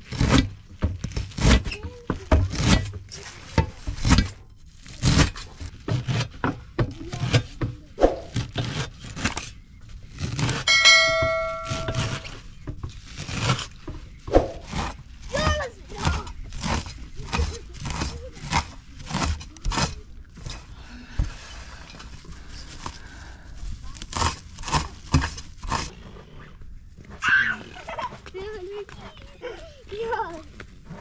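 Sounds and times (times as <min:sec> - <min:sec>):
kitchen utensils clattering: 0:10.6 - 0:12.3
metal object ringing: 0:10.7 - 0:12.3.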